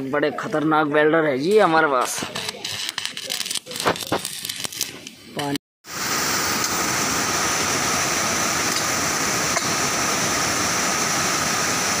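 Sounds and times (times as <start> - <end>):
waterfall rushing: 5.9 - 12.0.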